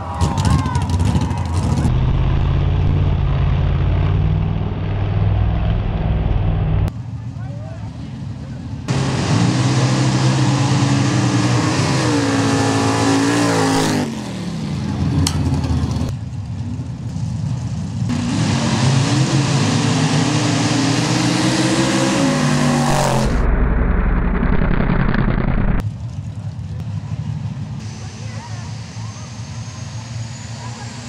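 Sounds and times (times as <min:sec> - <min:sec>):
heavy low rumble: 0:00.0 - 0:07.1, 0:22.6 - 0:27.7
racing engines revving: 0:00.0 - 0:07.1, 0:07.9 - 0:16.1, 0:16.8 - 0:23.5.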